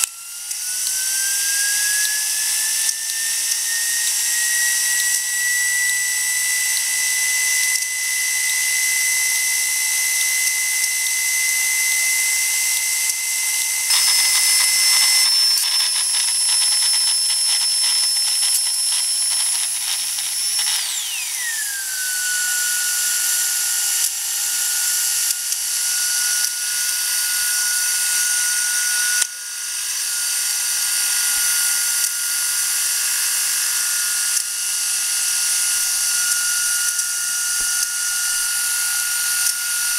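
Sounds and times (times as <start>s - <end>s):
steam hissing: 0.0s - 33.9s
steam turbine whine: 0.0s - 39.9s
fast rattle: 13.9s - 21.4s.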